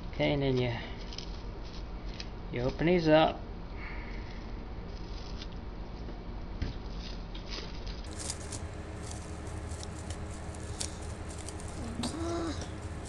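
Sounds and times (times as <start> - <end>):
cellophane crinkling: 7.5 - 13.0.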